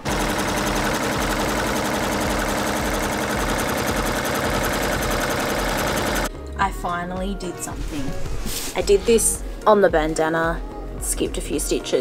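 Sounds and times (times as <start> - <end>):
embroidery machine clattering: 0.0 - 6.3.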